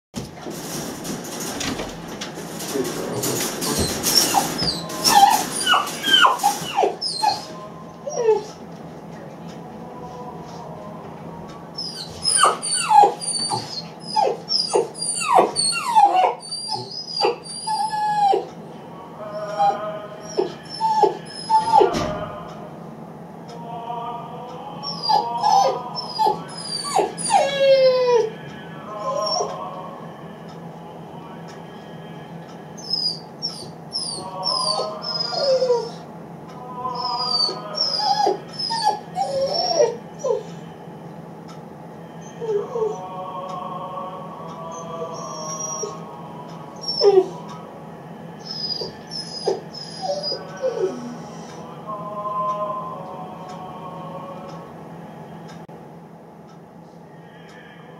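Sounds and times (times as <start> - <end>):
puppy whining and yelping: 3.6 - 8.6, 11.8 - 18.6, 19.3 - 22.0, 24.8 - 28.4, 29.0 - 29.6, 32.8 - 36.1, 37.0 - 40.6, 42.2 - 43.0, 44.7 - 46.0, 46.8 - 47.4, 48.4 - 51.6.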